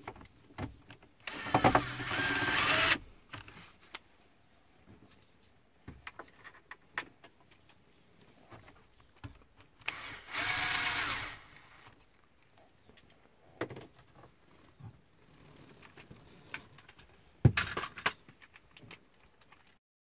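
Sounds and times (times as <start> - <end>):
cordless drill motor whining: 1.2 - 3.3, 9.8 - 12.0.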